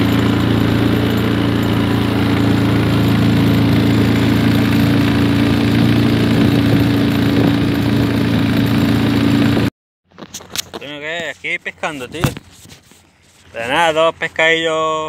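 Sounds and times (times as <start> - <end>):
boat motor running: 0.0 - 9.7.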